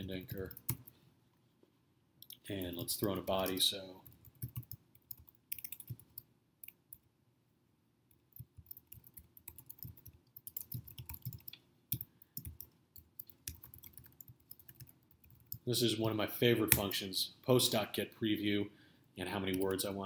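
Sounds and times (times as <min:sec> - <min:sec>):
typing on computer keyboard: 0:02.2 - 0:07.0, 0:08.1 - 0:15.6.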